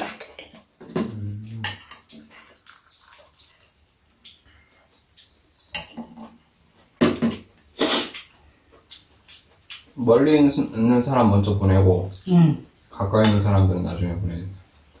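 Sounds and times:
wet slurps: 2.6 - 3.8.

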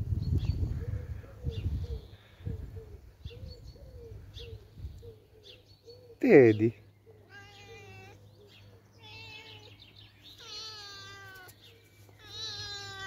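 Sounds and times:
cat meowing: 7.3 - 8.2, 9.0 - 9.8, 10.4 - 11.6, 12.2 - 13.0.

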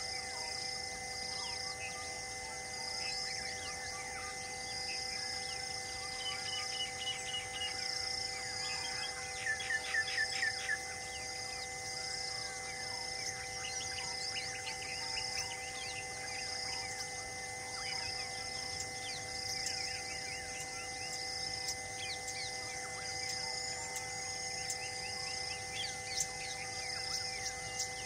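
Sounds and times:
wild birds chirping: 3.0 - 28.0.

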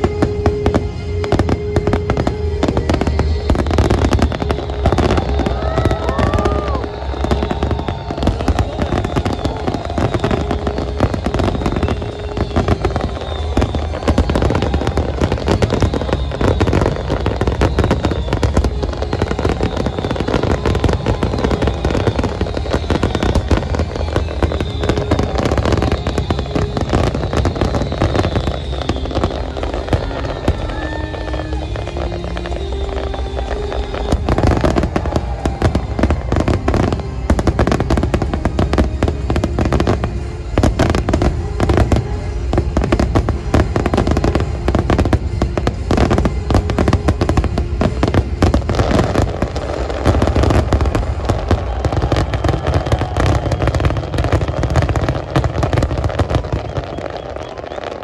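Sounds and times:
firework whistles: 0.0 - 58.0
fireworks crackling and bangs: 0.0 - 58.0
music: 0.0 - 58.0.

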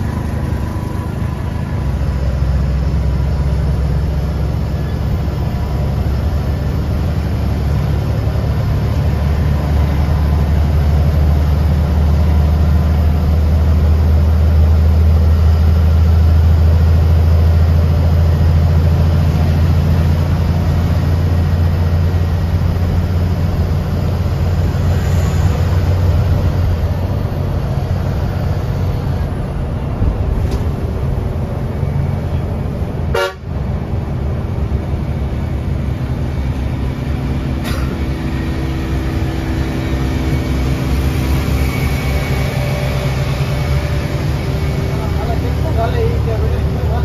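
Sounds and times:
bus diesel engine droning: 0.0 - 47.0
vehicle horn honking: 33.1 - 33.5.

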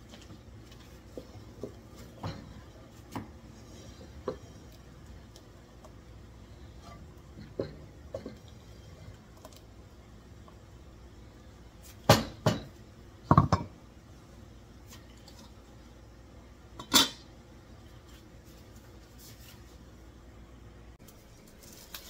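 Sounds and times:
pot lid clanking onto pot: 16.8 - 17.2.

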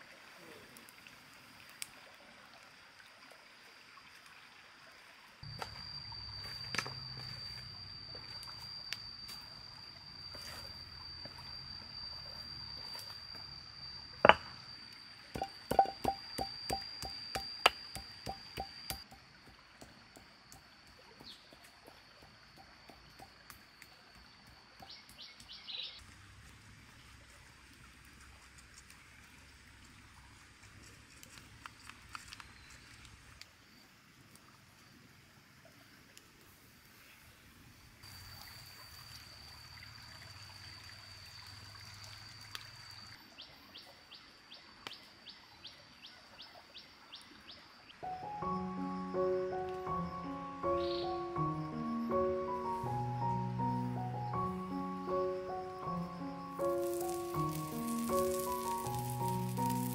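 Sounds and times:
high-pitched whine: 5.4 - 19.2
music: 15.4 - 19.0, 48.0 - 59.9
bird chirps: 21.0 - 26.0, 43.4 - 59.9.

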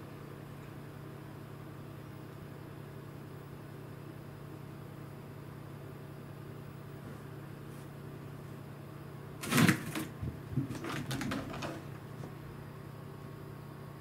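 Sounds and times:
knocking and rustling: 9.4 - 12.4.

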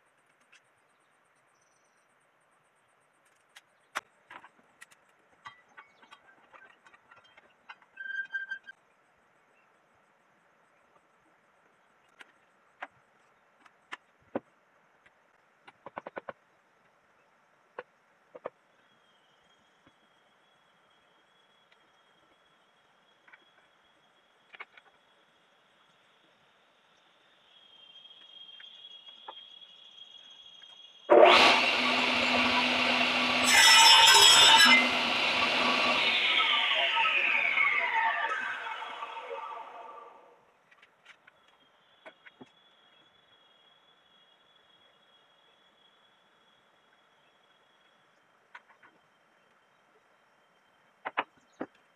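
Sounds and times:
saw blade cutting log: 31.1 - 40.0
table saw running: 31.1 - 40.3.

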